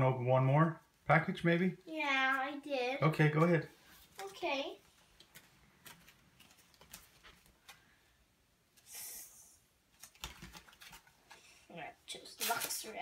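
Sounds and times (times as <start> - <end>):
foil crinkle: 12.3 - 13.0
foil wrapper rustling: 12.3 - 13.0.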